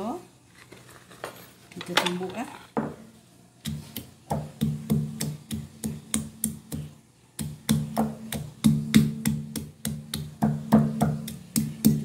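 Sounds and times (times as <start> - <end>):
stone pestle pounding in mortar: 3.7 - 12.0.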